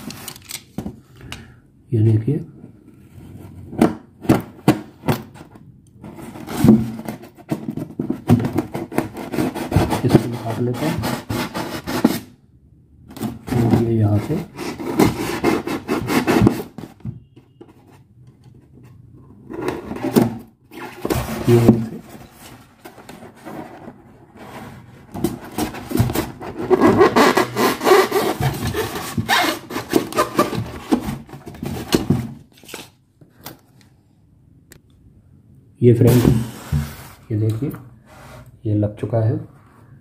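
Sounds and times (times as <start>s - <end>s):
polystyrene foam scraping: 36.0s - 37.3s.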